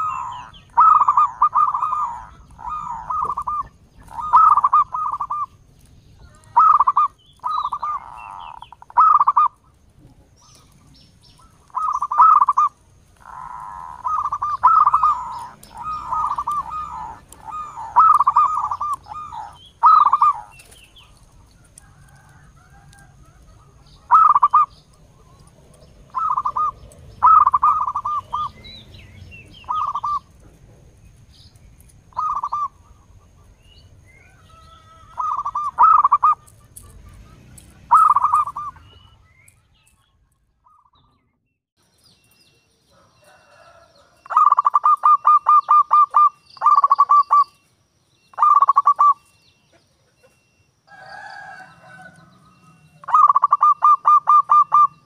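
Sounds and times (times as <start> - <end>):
dove cooing in staccato notes: 0.0 - 5.6, 6.2 - 28.9, 29.5 - 30.9, 32.1 - 33.6, 34.5 - 39.2, 43.6 - 47.5, 49.8 - 55.0.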